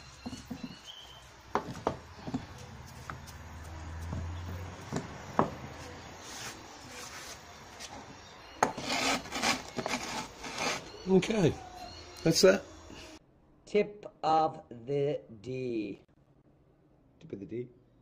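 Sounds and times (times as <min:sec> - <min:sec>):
light knocks on wooden workbench: 0:04.9 - 0:05.6
scraping on workbench: 0:08.6 - 0:10.9.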